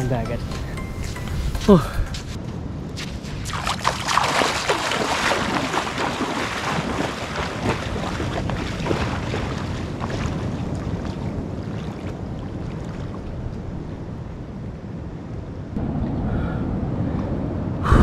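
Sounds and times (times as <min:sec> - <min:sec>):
wind rumble on microphone: 0:00.4 - 0:18.0
person wading through seawater: 0:03.4 - 0:13.4.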